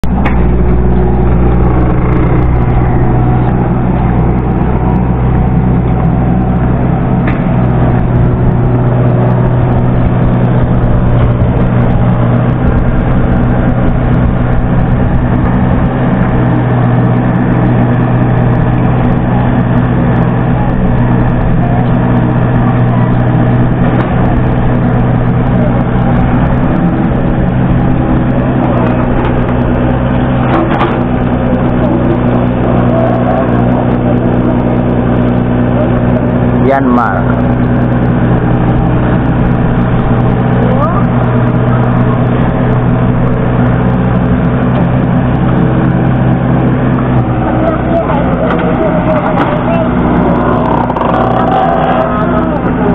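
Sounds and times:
diesel engine running: 0.0s - 52.9s.

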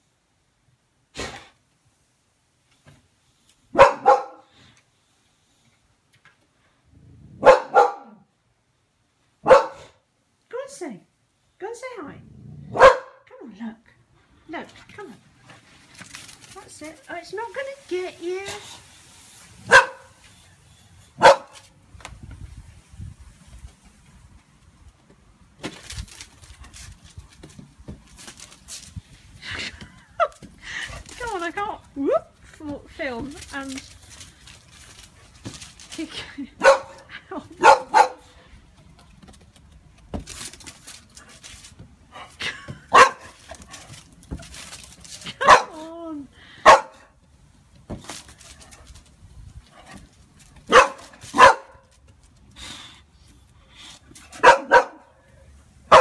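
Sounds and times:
dog barking: 3.8s - 4.5s, 7.4s - 8.2s, 9.4s - 10.0s, 12.7s - 13.2s, 19.7s - 20.1s, 21.2s - 21.6s, 36.6s - 37.0s, 37.6s - 38.3s, 42.9s - 43.2s, 45.4s - 45.7s, 46.6s - 47.0s, 50.7s - 51.8s, 54.4s - 55.1s
footsteps on brick paving: 23.4s - 42.0s.

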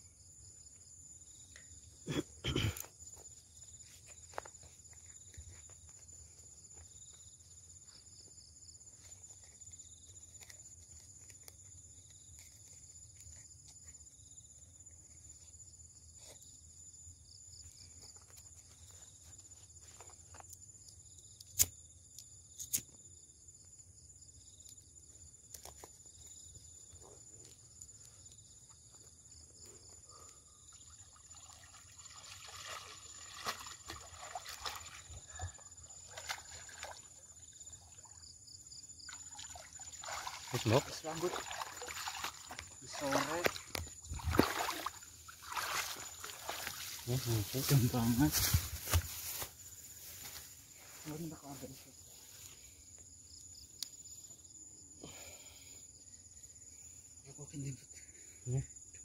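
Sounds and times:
insects chirring: 0.0s - 59.0s
water sloshing and splashing: 30.8s - 38.3s, 39.0s - 47.2s.

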